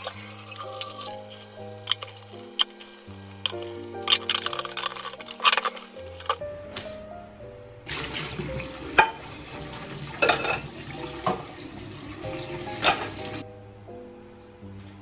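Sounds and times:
tap water running into sink: 0:07.9 - 0:13.4.

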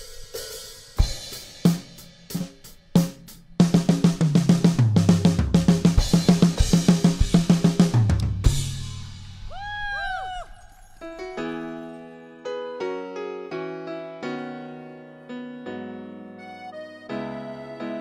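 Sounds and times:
rock drum kit playing: 0:00.0 - 0:09.7.

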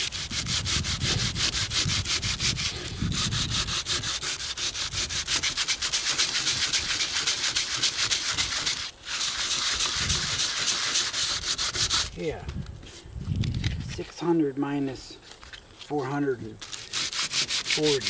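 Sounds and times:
sandpaper rasping on epoxy: 0:00.0 - 0:12.2, 0:16.6 - 0:18.0.

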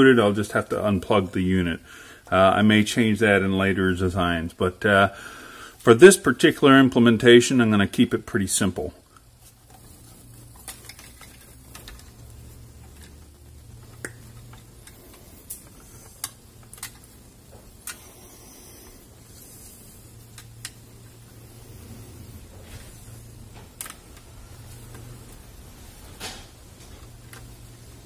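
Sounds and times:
low steady hum: 0:00.0 - 0:28.0
hands handling wires and cable tie: 0:09.2 - 0:18.0.

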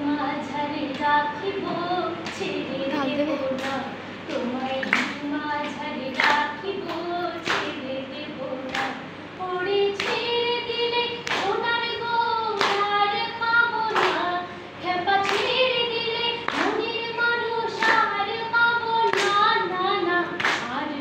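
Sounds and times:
woman singing a slow song: 0:00.0 - 0:21.0
hand claps: 0:03.5 - 0:07.8, 0:08.6 - 0:09.0, 0:09.9 - 0:10.3, 0:11.2 - 0:11.6, 0:12.5 - 0:14.3, 0:15.2 - 0:15.6, 0:16.4 - 0:16.9, 0:17.7 - 0:18.1, 0:19.0 - 0:20.8.

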